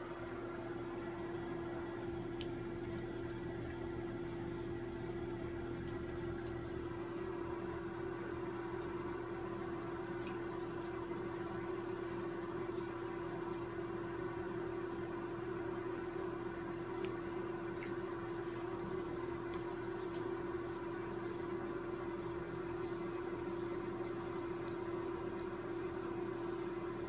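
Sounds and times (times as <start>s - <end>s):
steady hum: 0.0s - 27.0s
small water splashes: 8.4s - 14.0s, 16.9s - 27.0s.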